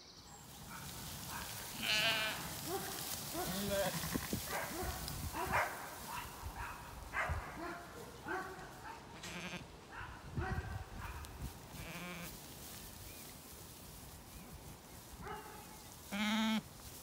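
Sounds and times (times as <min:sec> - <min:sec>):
lambs bleating: 0:01.7 - 0:02.5, 0:03.4 - 0:04.4, 0:09.2 - 0:09.7, 0:11.8 - 0:12.3, 0:16.1 - 0:16.7.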